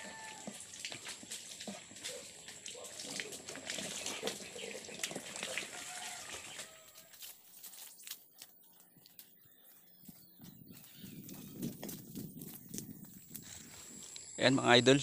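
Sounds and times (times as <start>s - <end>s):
water splashing from hose: 0.0s - 8.2s.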